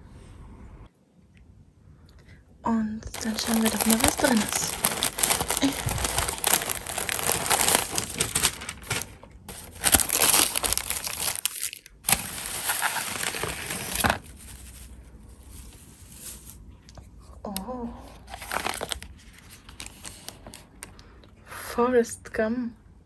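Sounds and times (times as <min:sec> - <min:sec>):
paper crinkling and rustling: 0:03.1 - 0:16.7, 0:18.3 - 0:20.9.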